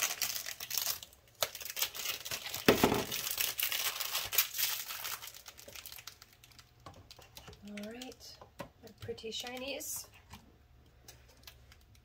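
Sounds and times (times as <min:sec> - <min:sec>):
plastic film peeling and crinkling: 0:00.0 - 0:08.3.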